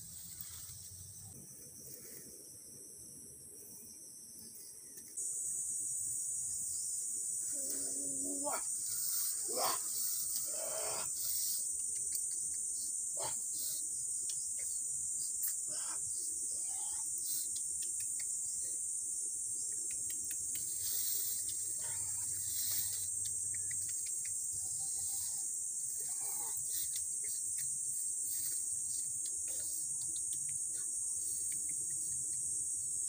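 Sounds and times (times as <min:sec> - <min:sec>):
leaves rustling: 0:00.0 - 0:01.2
insects chirping: 0:00.0 - 0:33.0.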